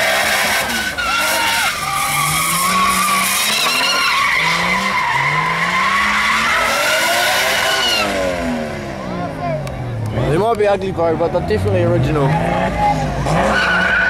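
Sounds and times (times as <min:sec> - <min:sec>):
tyre squeal: 0:00.0 - 0:08.1, 0:13.4 - 0:14.0
car engine revving: 0:00.0 - 0:14.0.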